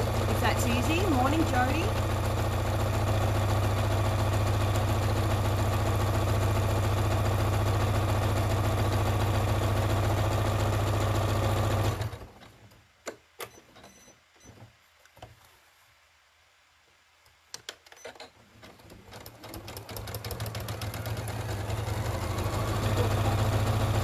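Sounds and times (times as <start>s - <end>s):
sewing machine stitching: 0.0s - 12.6s, 17.6s - 24.0s.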